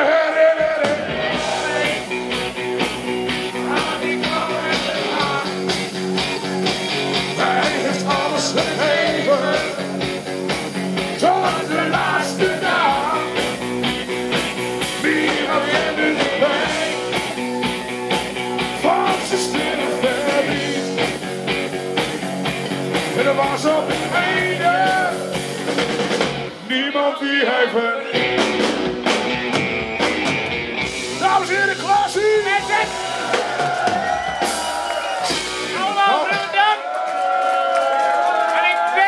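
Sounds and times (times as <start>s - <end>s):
voices singing: 0.0s - 10.2s, 11.0s - 13.6s, 14.6s - 21.3s, 23.0s - 25.6s, 26.6s - 28.4s
live rock band playing: 0.0s - 27.1s, 27.7s - 36.7s.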